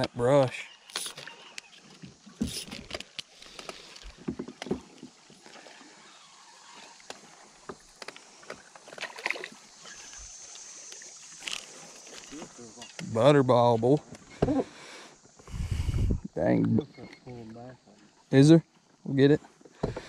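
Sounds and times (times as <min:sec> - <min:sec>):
knocks and clicks of fishing rod: 0:00.9 - 0:05.2.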